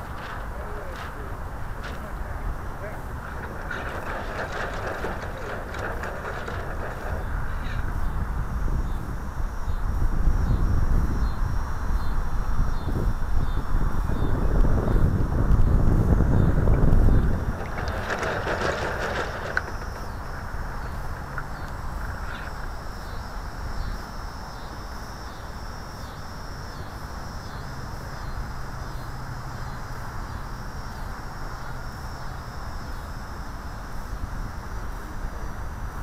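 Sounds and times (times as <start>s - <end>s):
water rushing along boat hull: 0.0s - 7.9s, 15.4s - 23.7s.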